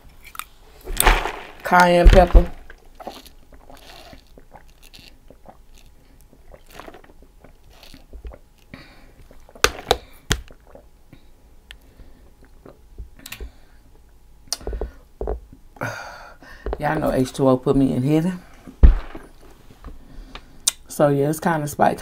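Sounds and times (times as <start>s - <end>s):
chewing: 2.9s - 9.6s
sipping through a straw: 3.0s - 5.2s, 6.5s - 8.1s.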